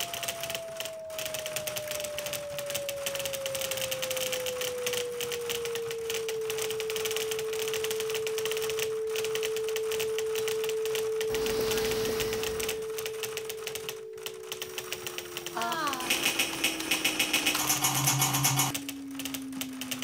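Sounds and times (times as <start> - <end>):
crackle of fast clicks: 0.0 - 20.0
electronic tone gliding downward: 5.0 - 20.0.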